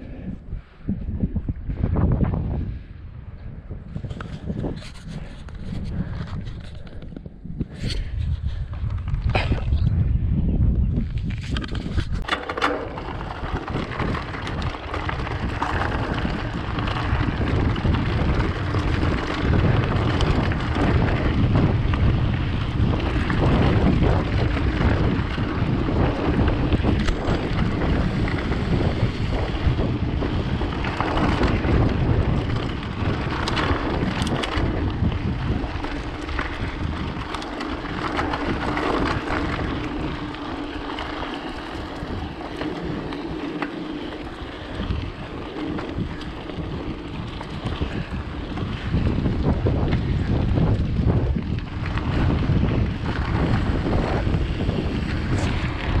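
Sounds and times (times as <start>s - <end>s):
bike tyres rumbling: 0.0s - 56.0s
wind on microphone: 0.0s - 56.0s
bike knocks and rattles: 11.0s - 56.0s.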